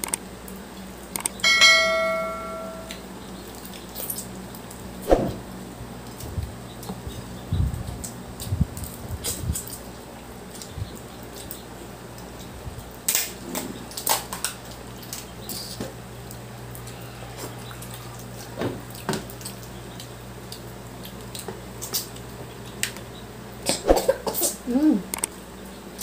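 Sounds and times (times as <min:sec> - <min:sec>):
low steady hum: 0:00.6 - 0:12.9
shells cracking while chewing: 0:08.0 - 0:23.0.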